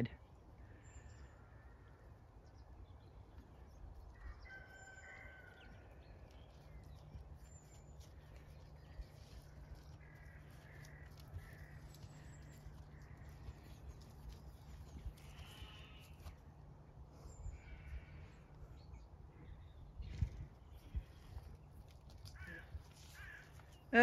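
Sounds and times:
distant animal calls: 9.2 - 16.4, 17.5 - 18.5, 22.2 - 24.0
wind rumble on microphone: 18.8 - 23.4.

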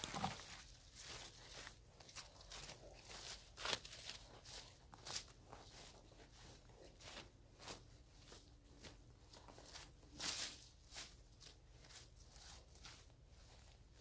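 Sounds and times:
digging tool scraping dry soil: 0.0 - 6.6.

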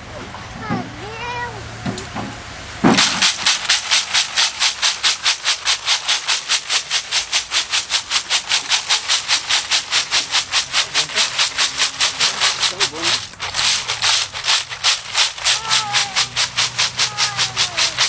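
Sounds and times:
shells rattling in plastic crate: 2.9 - 18.0.

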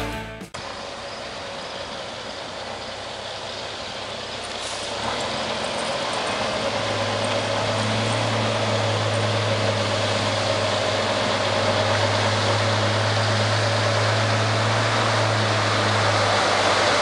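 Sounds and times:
diesel truck engine running: 0.0 - 17.0.

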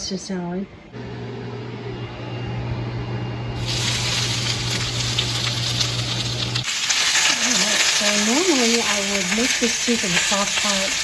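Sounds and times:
steady low hum: 0.0 - 6.6
vegetables sizzling in hot oil: 3.6 - 11.0.

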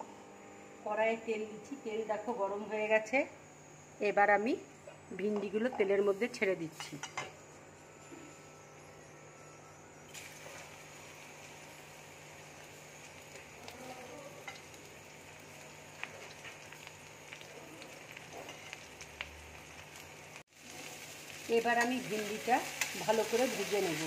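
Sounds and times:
okra sizzling in hot oil: 5.2 - 24.0.

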